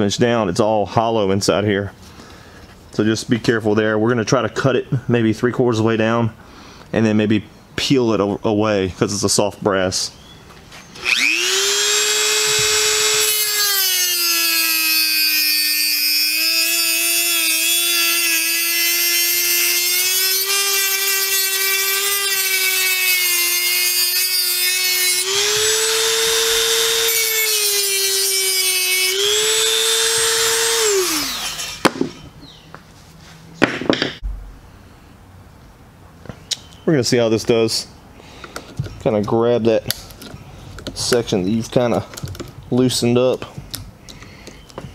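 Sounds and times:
rotary tool whine: 10.9s - 31.9s
cut-off wheel grinding metal: 11.0s - 31.9s.

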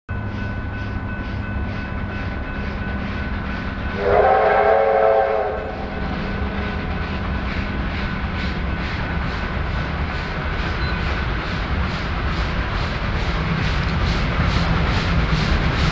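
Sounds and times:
steam locomotive exhaust beating: 0.1s - 15.9s
steam whistle blast: 4.0s - 5.9s.

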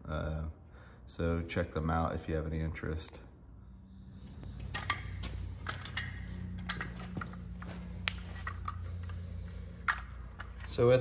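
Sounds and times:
low steady hum: 0.0s - 11.0s
metal clinks of gear puller: 4.7s - 7.1s.

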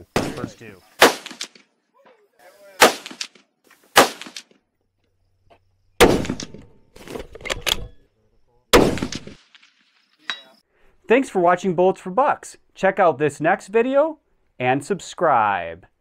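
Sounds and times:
rifle shots: 0.2s - 1.6s, 2.8s - 3.4s, 4.0s - 4.4s, 6.0s - 6.6s, 8.8s - 9.8s
faint sharp cracks: 1.0s - 1.7s, 2.8s - 4.6s.

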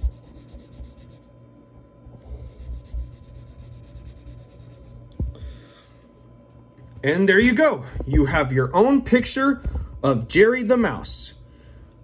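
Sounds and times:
pencil shading on paper: 0.0s - 1.3s, 2.5s - 5.0s.

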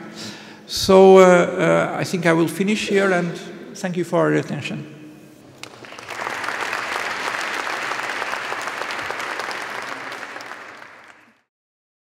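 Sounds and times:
audience applauding: 5.5s - 11.5s.

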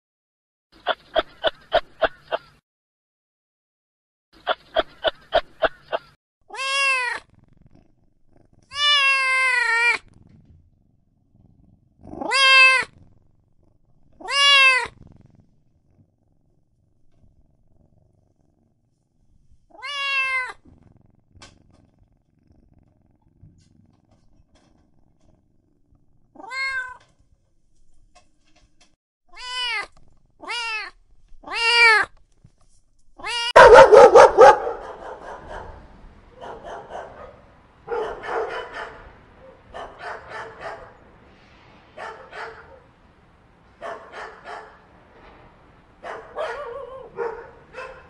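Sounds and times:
cat meowing: 6.5s - 7.3s, 8.7s - 10.1s, 12.1s - 13.0s, 14.2s - 15.0s, 19.7s - 20.6s, 26.4s - 27.0s, 29.3s - 32.1s, 33.2s - 33.6s
dogs growling and barking: 33.6s - 41.2s, 41.8s - 43.0s, 43.7s - 48.0s.

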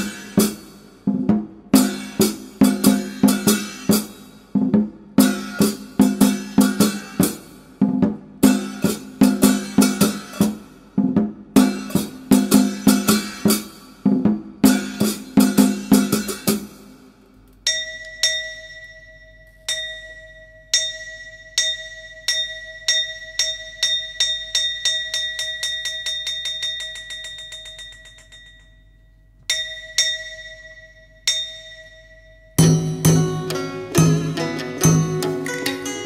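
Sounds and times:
drum strokes: 0.0s - 16.9s, 32.6s - 36.0s
small gong struck: 32.6s - 36.0s.

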